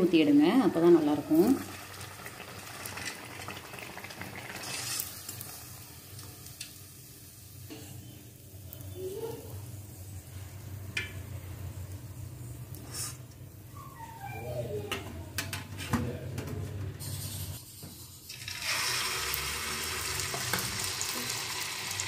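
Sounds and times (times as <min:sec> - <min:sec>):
dumpling sizzling in hot oil: 0:00.3 - 0:11.3, 0:17.5 - 0:22.0.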